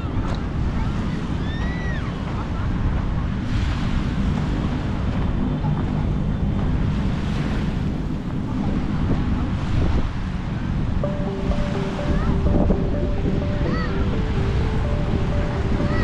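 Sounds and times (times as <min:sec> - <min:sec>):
small waves at shoreline: 0:00.0 - 0:16.0
wind buffeting microphone: 0:00.0 - 0:16.0
faint two-pitch held tone: 0:11.0 - 0:16.0.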